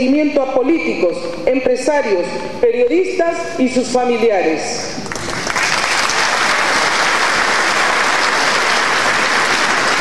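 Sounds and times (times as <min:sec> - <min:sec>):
applause: 0:05.0 - 0:10.0.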